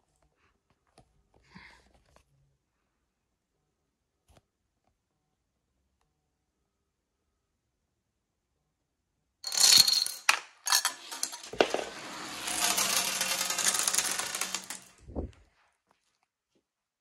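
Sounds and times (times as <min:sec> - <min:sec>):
dominoes clattering: 0:09.4 - 0:15.1
marbles rolling on plastic track: 0:09.4 - 0:15.3.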